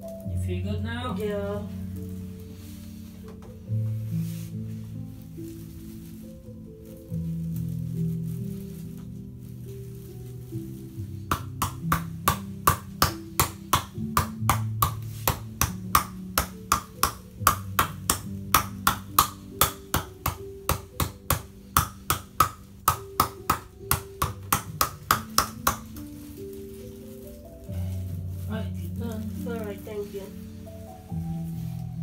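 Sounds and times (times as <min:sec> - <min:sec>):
slow background music: 0:00.0 - 0:32.0
hands slapping a back: 0:11.3 - 0:26.0.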